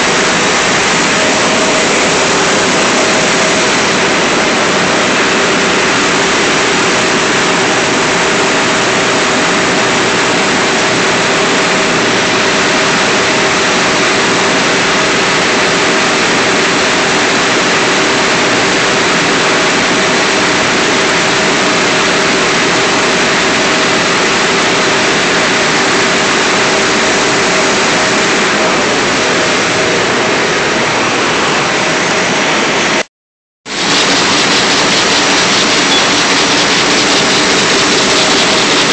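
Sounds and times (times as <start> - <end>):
two-tone hum: 0.0 - 9.9, 33.7 - 38.9
printing press running: 0.0 - 33.0, 33.7 - 38.9.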